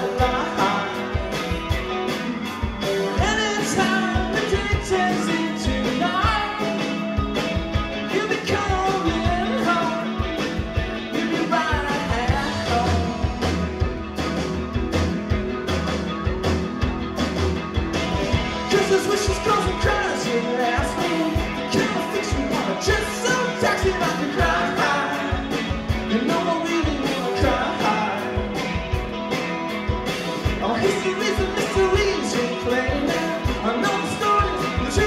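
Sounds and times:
drum kit beat: 0.0s - 35.0s
electric guitar: 0.0s - 35.0s.

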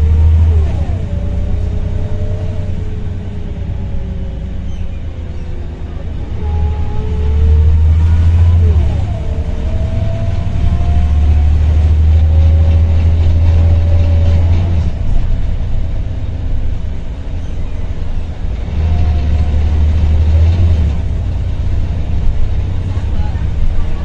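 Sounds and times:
bus engine rumble: 0.0s - 24.0s.

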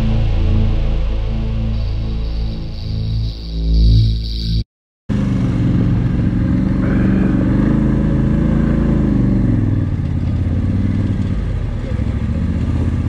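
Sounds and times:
quad bike engine running: 5.1s - 13.0s.

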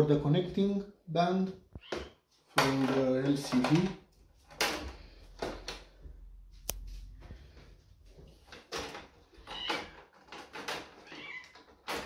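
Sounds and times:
plastic frame knocks and clatters: 1.9s - 6.0s, 8.2s - 12.0s.

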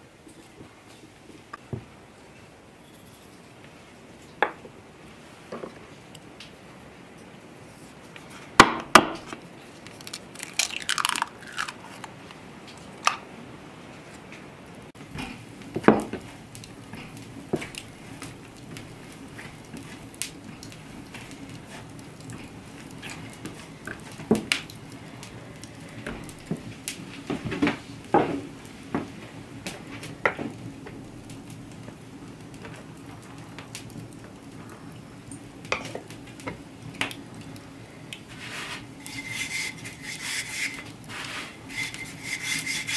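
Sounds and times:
egg cracking: 9.1s - 13.2s.

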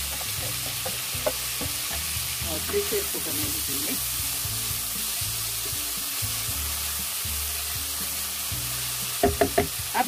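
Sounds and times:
vegetables sizzling in oil: 0.0s - 10.0s
spatula knocking against pan: 0.1s - 2.0s, 9.2s - 9.8s.

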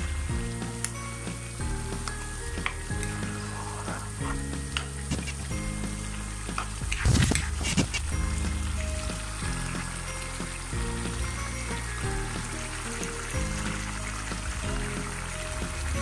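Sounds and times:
curry bubbling and sizzling: 0.0s - 16.0s.

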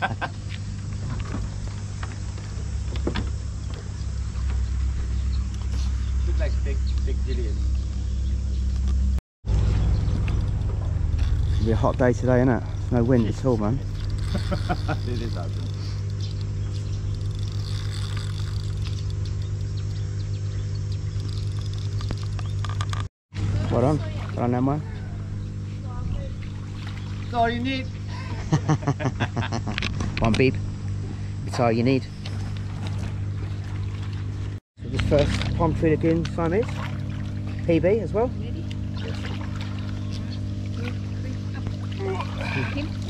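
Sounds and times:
low mechanical hum: 0.0s - 43.0s.

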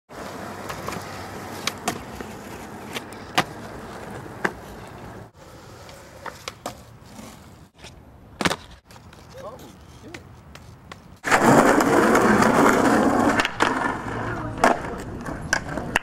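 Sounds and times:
skateboard wheels rolling on concrete: 0.1s - 16.0s
skateboard clacking: 0.2s - 6.9s, 10.1s - 16.0s.

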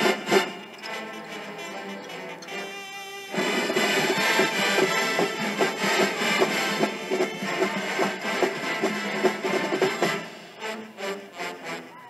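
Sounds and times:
bass and snare drums: 0.0s - 0.8s, 3.3s - 10.6s
brass chords: 0.0s - 12.0s.

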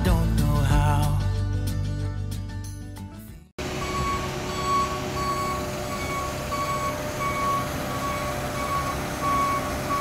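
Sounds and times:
engine running: 3.6s - 10.0s
motion alarm beeping: 3.7s - 10.0s.

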